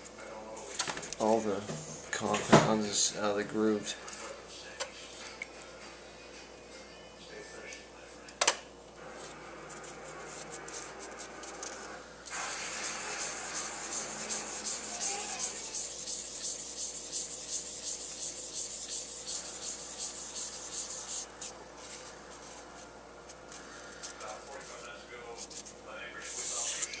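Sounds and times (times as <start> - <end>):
wipe scrubbing metal: 12.3 - 21.5.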